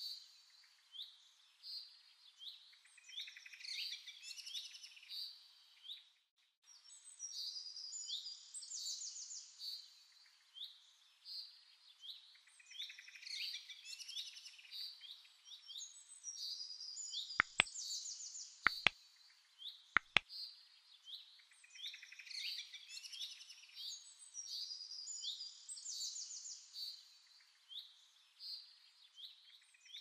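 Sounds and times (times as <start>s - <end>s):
sharp clicks: 17.4s - 17.7s, 18.7s - 18.9s, 20.0s - 20.2s.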